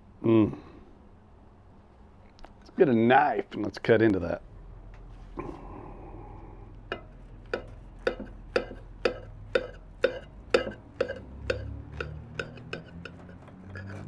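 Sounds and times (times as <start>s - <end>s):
knife scraping ceramic plate: 6.9s - 14.0s
knife sawing through burger: 12.4s - 14.0s.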